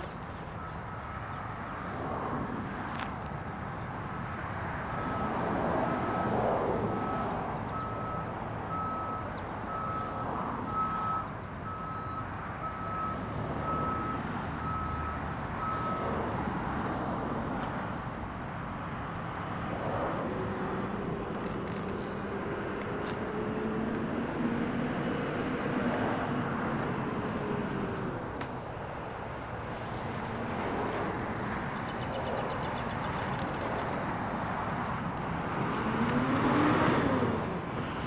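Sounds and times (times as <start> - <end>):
reversing alarm beeping: 7.0 - 16.1.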